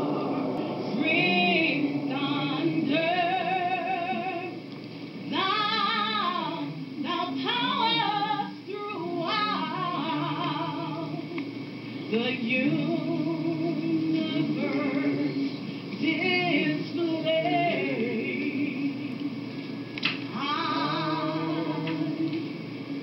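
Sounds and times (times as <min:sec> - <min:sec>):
musical accompaniment: 0:00.0 - 0:04.7
woman singing with vibrato: 0:00.0 - 0:04.7, 0:05.3 - 0:19.5, 0:20.3 - 0:22.8.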